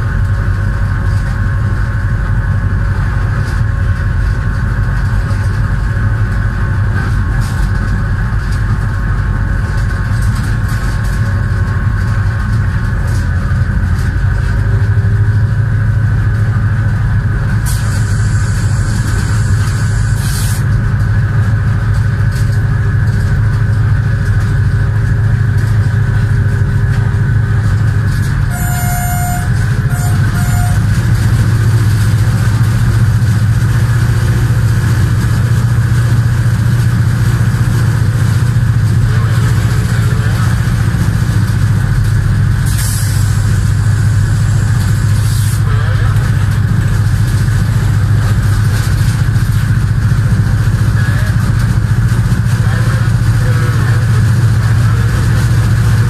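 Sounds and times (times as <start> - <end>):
locomotive engine drone: 0.0 - 56.0
wind and track noise: 0.0 - 56.0
short high beeps: 28.5 - 30.8.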